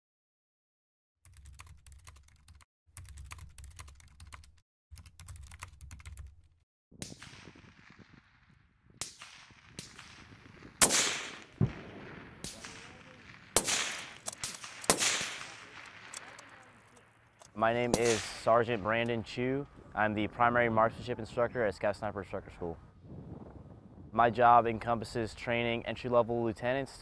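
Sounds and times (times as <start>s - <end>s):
keyboard typing clicks: 1.3s - 6.4s
rifle shots with echo: 7.0s - 18.9s.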